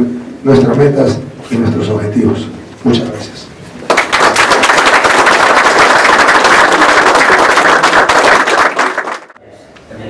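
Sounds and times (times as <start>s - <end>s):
people clapping: 3.8s - 9.4s.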